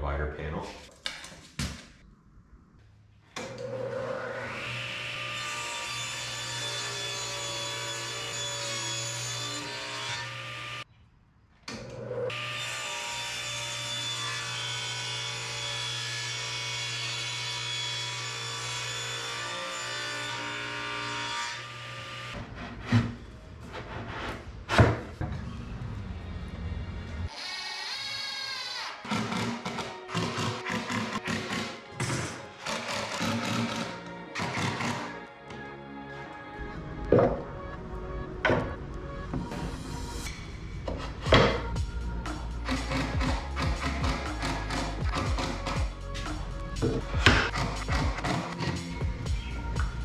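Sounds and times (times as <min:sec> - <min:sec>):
table saw cutting plywood: 0:03.4 - 0:10.8, 0:11.9 - 0:23.2, 0:27.3 - 0:35.2, 0:42.6 - 0:45.8.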